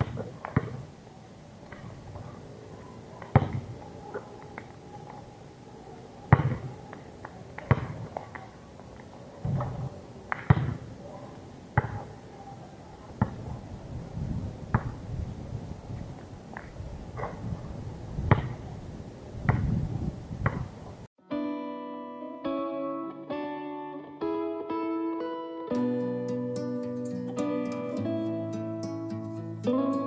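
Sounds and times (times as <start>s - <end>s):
basketball bouncing on asphalt: 0.0s - 0.9s, 3.2s - 3.7s, 6.3s - 8.4s, 9.4s - 10.9s, 11.8s - 12.1s, 13.2s - 13.5s, 14.7s - 15.0s, 18.2s - 18.6s, 19.5s - 19.8s, 20.4s - 20.7s
basketball hitting hoop: 3.3s - 3.7s, 6.3s - 6.7s, 7.7s - 8.1s, 9.5s - 10.9s, 18.3s - 18.6s.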